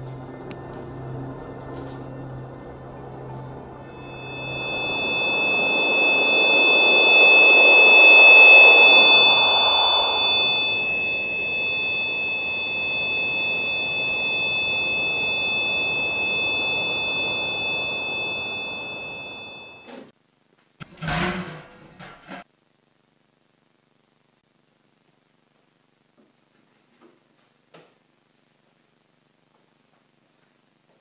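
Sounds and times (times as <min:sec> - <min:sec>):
high-pitched electronic buzzing drone: 0:00.0 - 0:19.9
rushing noise: 0:03.7 - 0:19.8.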